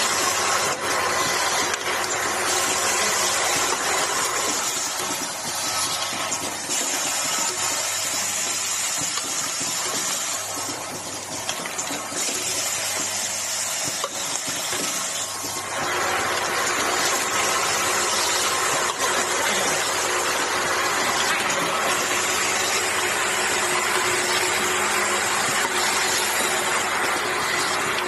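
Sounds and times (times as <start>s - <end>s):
assembly machine running with hiss: 0.0s - 28.0s.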